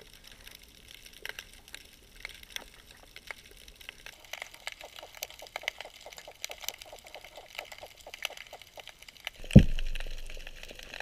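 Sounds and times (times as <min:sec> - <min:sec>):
underwater crackle of clicks: 0:00.0 - 0:11.0
loud low thump: 0:09.4 - 0:10.3.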